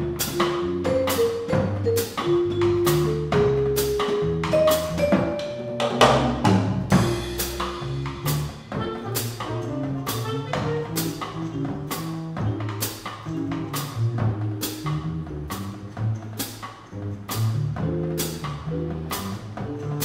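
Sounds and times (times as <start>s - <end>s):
upright bass line: 0.0s - 20.0s
vibraphone mallet notes: 0.1s - 6.5s.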